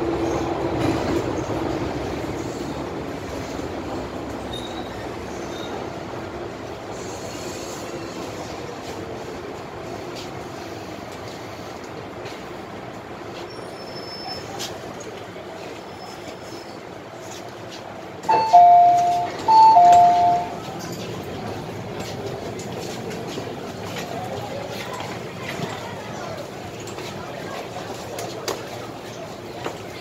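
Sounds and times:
train wheels and motors rumbling: 0.0s - 30.0s
faint high squeals: 13.5s - 14.6s.

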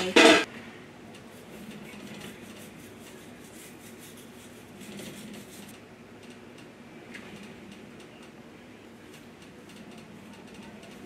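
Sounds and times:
toothbrush scrubbing teeth: 1.3s - 5.7s.

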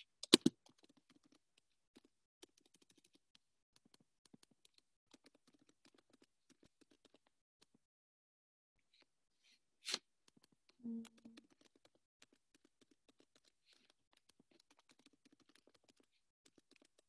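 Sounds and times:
typing on computer keyboard: 2.0s - 7.3s, 10.3s - 17.0s.

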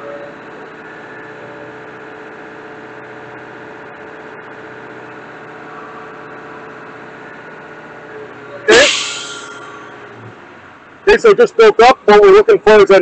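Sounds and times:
air compressor running: 8.7s - 10.4s.

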